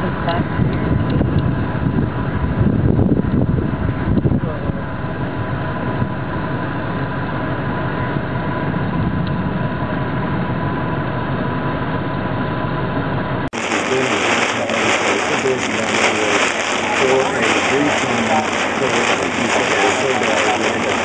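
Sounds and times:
heavy rain hissing: 0:13.5 - 0:21.0.

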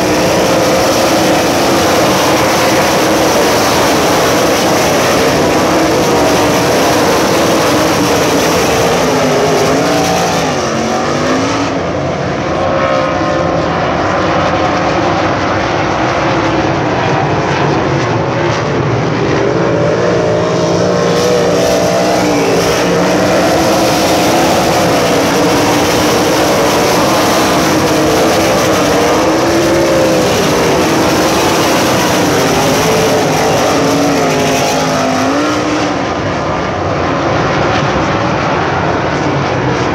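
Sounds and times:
race car engines revving: 0:00.0 - 0:39.9.

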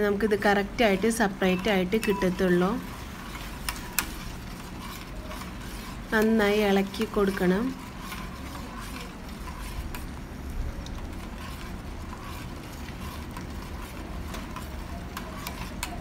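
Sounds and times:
metal spoon scraping steel pot: 0:01.6 - 0:10.0.

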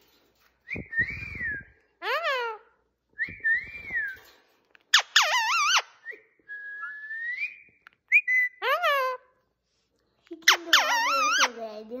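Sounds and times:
parakeet whistling and calling: 0:04.9 - 0:09.2.

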